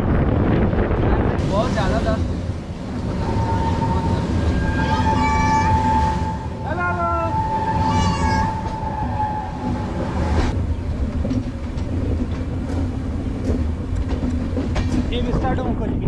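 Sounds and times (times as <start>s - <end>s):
train coach rumbling: 0.0s - 16.0s
high held tone: 3.2s - 10.1s.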